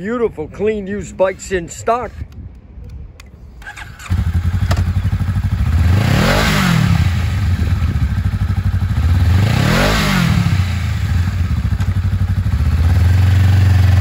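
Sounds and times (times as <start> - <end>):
motorcycle engine idling: 3.6 - 9.6, 10.5 - 14.0.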